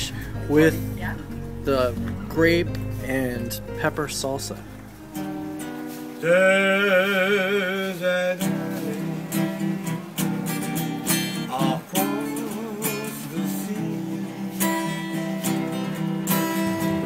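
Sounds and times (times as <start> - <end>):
person singing: 0.0 - 15.6
acoustic guitar strumming: 0.0 - 17.0.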